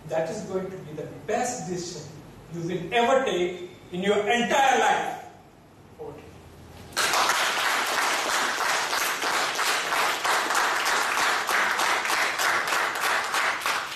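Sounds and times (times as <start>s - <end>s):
audience applauding: 7.0s - 13.9s.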